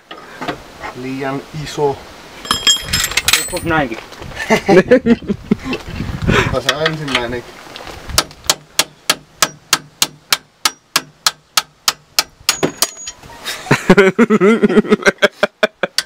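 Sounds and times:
man speaking: 0:00.9 - 0:02.0, 0:06.4 - 0:07.5.

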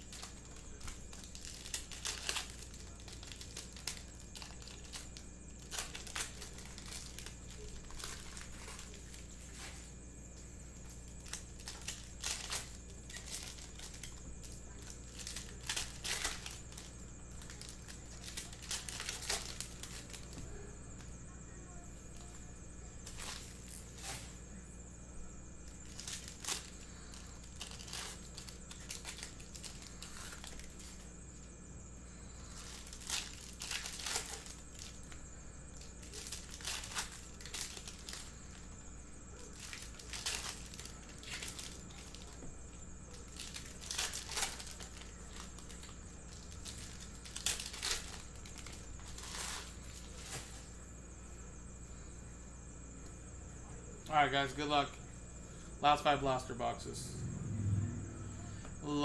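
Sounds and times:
plastic wrappers tearing and crinkling: 0:00.0 - 0:09.9, 0:10.8 - 0:20.4, 0:23.0 - 0:24.4, 0:25.6 - 0:31.1, 0:32.1 - 0:38.6, 0:39.3 - 0:42.4, 0:43.1 - 0:50.7
steady low hum: 0:00.0 - 0:59.0.

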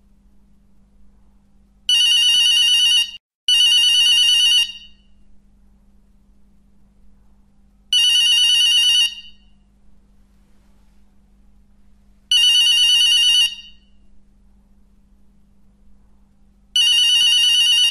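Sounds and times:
faint steady hum: 0:00.0 - 0:17.9
telephone ringing: 0:01.9 - 0:05.1, 0:08.0 - 0:09.4, 0:12.3 - 0:13.9, 0:16.8 - 0:17.9.

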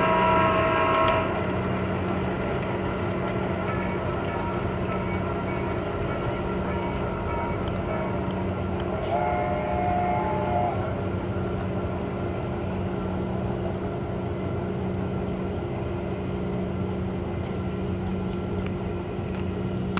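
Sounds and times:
train horn: 0:00.0 - 0:01.6, 0:03.7 - 0:11.0
model trains humming and rumbling: 0:00.0 - 0:19.9.

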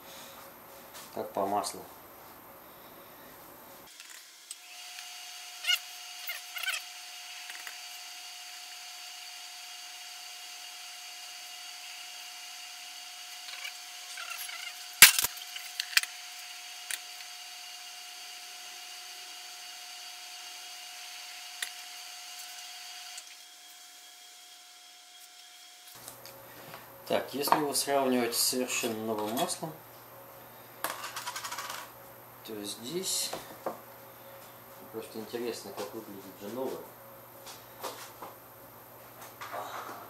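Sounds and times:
steady high hum: 0:00.0 - 0:03.9, 0:26.0 - 0:40.0.

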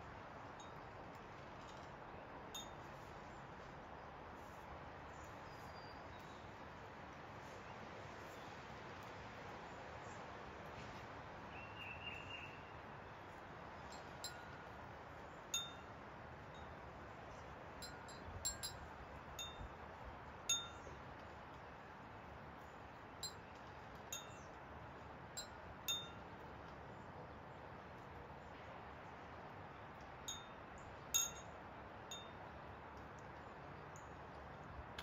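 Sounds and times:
wind chimes ringing: 0:02.6 - 0:02.8, 0:13.9 - 0:14.6, 0:15.6 - 0:15.9, 0:17.8 - 0:19.7, 0:20.5 - 0:20.9, 0:25.4 - 0:26.2, 0:31.2 - 0:31.5.

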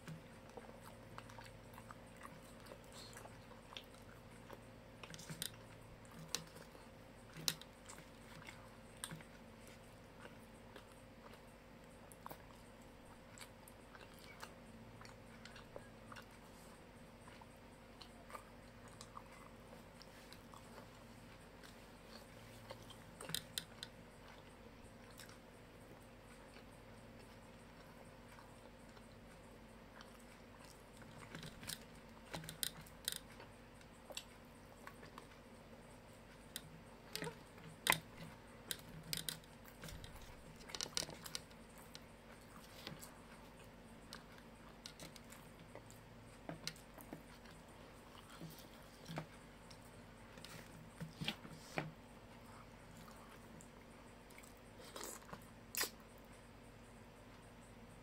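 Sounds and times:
person chewing crunchy food: 0:00.0 - 0:56.5
mouth clicks: 0:55.0 - 0:56.1.

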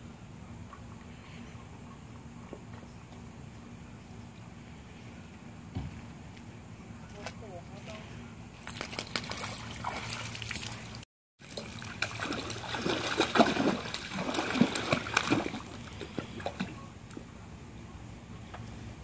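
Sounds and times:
dog splashing in water: 0:08.6 - 0:16.7
water dribbling: 0:08.8 - 0:17.2.

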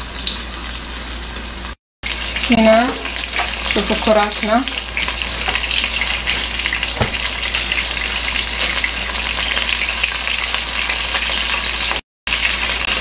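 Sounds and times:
meatballs sizzling in oil: 0:00.0 - 0:13.0
metal tongs knock: 0:05.4 - 0:07.5.

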